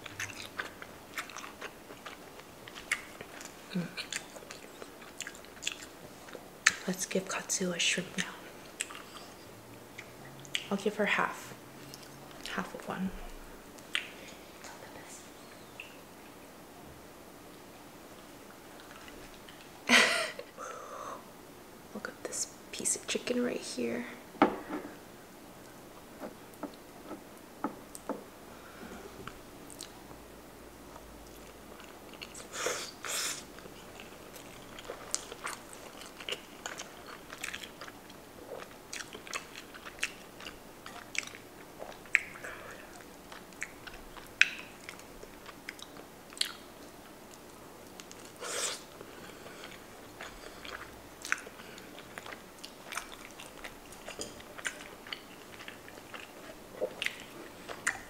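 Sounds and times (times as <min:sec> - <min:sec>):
wet chewing: 0:00.0 - 0:06.8, 0:08.2 - 0:10.8, 0:33.3 - 0:58.0.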